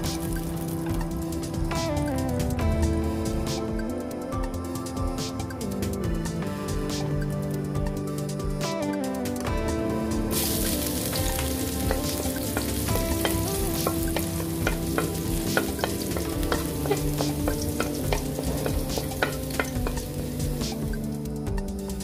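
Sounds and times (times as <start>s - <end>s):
garlic sizzling in hot oil: 0.0s - 1.1s, 10.2s - 21.1s
spatula scraping wok: 10.3s - 21.0s.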